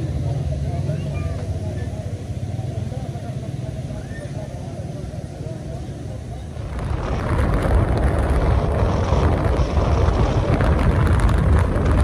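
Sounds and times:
low rumble of travel noise: 0.0 - 12.0
wind buffeting microphone: 6.4 - 12.0.

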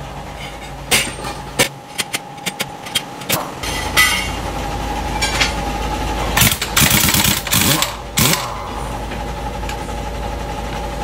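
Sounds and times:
steady motor hum: 0.0 - 11.0
tools clicking and knocking: 0.4 - 4.4.

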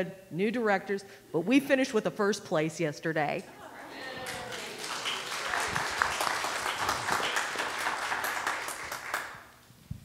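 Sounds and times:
congregation applauding: 3.9 - 9.6.

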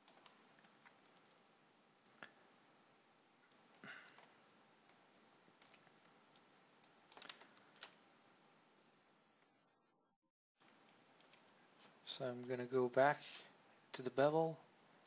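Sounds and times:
low steady hiss: 0.0 - 9.9, 10.6 - 15.0
faint computer clicks: 5.6 - 8.0.

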